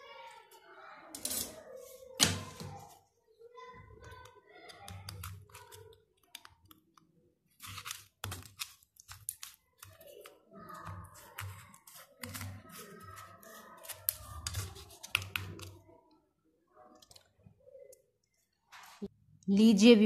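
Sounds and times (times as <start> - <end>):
knife cutting brittle candy on plate: 7.5 - 15.7.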